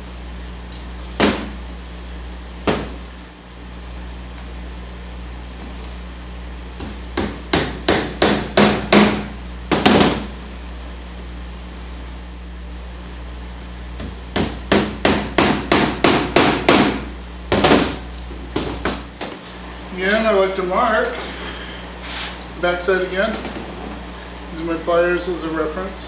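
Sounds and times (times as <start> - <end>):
hammer driving tacks into wood: 6.8 - 10.2, 14.0 - 18.0.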